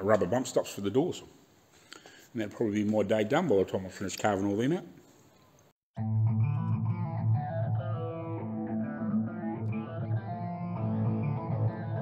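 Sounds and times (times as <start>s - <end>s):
guitar-led background music: 6.0s - 12.0s.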